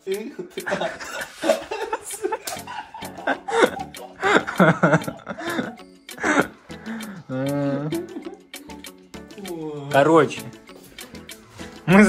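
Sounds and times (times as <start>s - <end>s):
men laughing: 0.3s - 8.9s.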